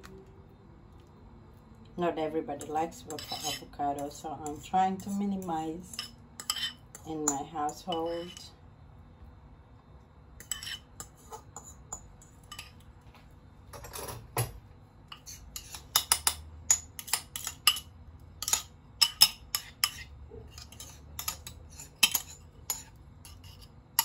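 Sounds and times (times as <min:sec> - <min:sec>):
cutlery scraping on ceramic plate: 0:02.6 - 0:05.2, 0:05.9 - 0:08.5, 0:10.4 - 0:12.8, 0:13.8 - 0:14.5, 0:15.1 - 0:24.0.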